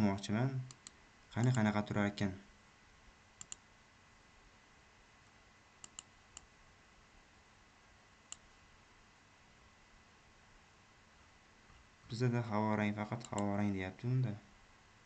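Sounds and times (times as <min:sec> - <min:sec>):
faint room hiss: 0:00.0 - 0:15.0
computer mouse clicks: 0:00.7 - 0:01.7, 0:03.4 - 0:03.6, 0:05.8 - 0:06.5, 0:08.3 - 0:08.5, 0:13.2 - 0:13.5.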